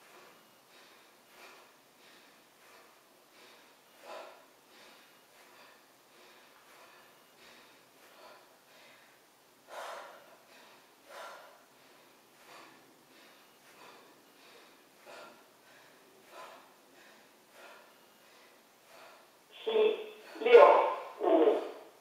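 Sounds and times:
woman breathing out in puffs: 0:00.0 - 0:19.5.

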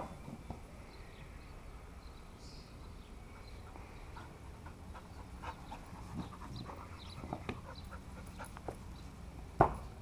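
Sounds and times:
dog panting: 0:03.4 - 0:08.9.

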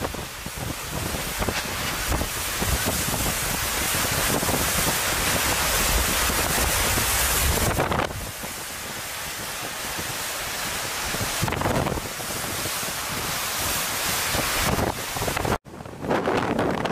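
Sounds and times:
driving rain: 0:00.0 - 0:15.7
strong wind on microphone: 0:00.0 - 0:16.9.

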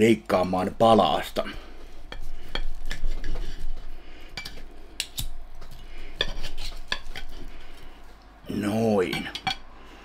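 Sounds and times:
knife and fork scraping plate: 0:06.1 - 0:07.7.

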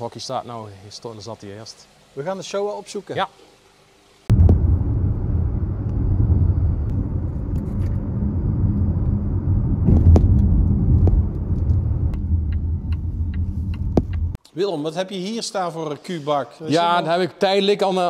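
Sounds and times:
car engine and road noise: 0:04.3 - 0:14.4.

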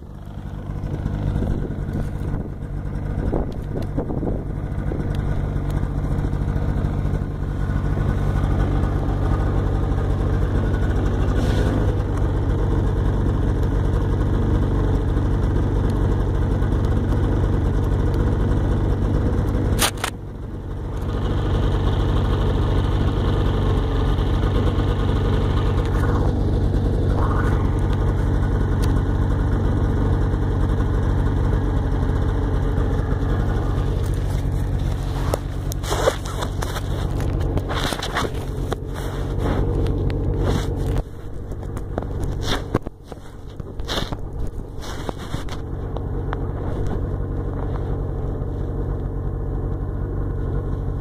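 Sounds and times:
snowmobile engine running: 0:00.0 - 0:51.0
clicks and crackles: 0:03.0 - 0:04.0, 0:04.8 - 0:06.9, 0:19.1 - 0:20.2, 0:33.4 - 0:48.0.

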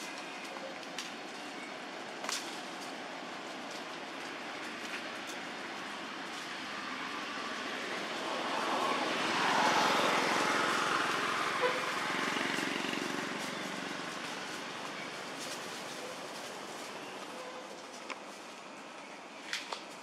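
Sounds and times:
vehicle passing by: 0:06.6 - 0:16.0.

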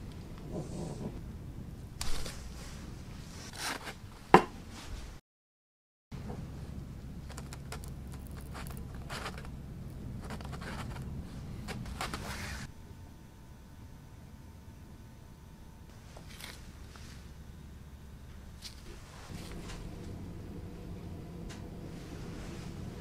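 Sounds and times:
styrofoam scraping and squeaking: 0:10.2 - 0:11.1, 0:11.7 - 0:12.7.

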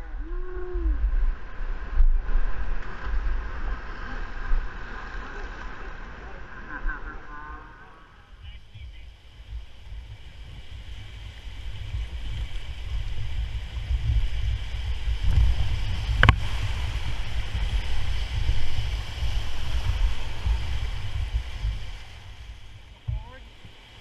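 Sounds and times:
whitewater rushing: 0:00.1 - 0:24.0.

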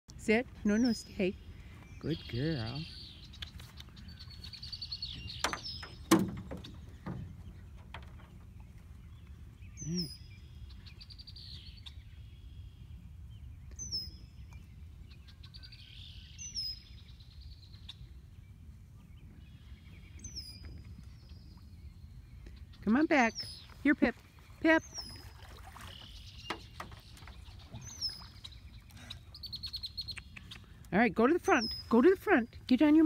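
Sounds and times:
songbirds singing: 0:00.1 - 0:33.0
sharp knocks: 0:05.3 - 0:08.3.

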